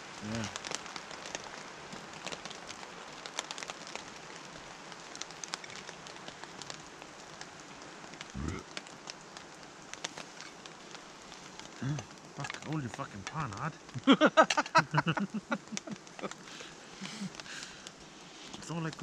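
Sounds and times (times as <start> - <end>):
low voice: 0.2 - 0.5, 8.4 - 8.6, 11.8 - 13.8.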